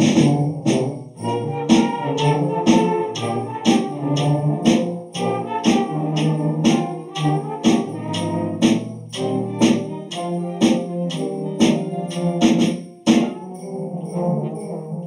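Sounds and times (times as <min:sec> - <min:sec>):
steady percussion beat: 0:00.0 - 0:15.0.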